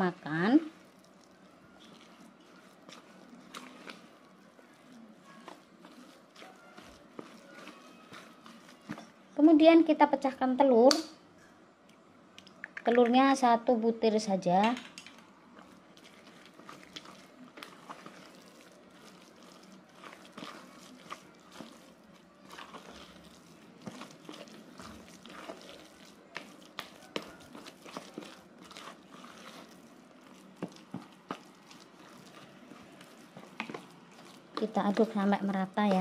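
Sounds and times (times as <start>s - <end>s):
spoon scraping plastic bowl: 1.8s - 9.2s, 15.6s - 36.0s.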